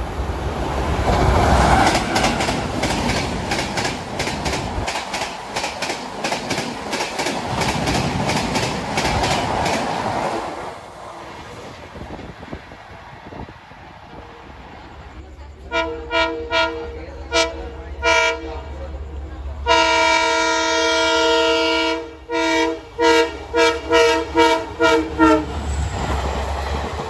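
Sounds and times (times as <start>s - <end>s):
locomotive rushing past: 0.0s - 27.0s
train wheels clicking over rail joints: 1.2s - 10.6s.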